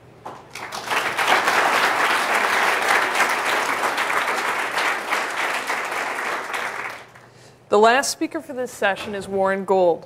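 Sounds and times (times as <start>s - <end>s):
audience applauding: 0.4s - 7.3s.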